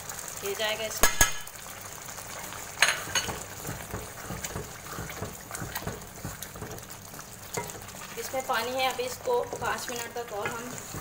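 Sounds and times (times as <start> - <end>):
curry bubbling and spitting: 1.7 - 8.4.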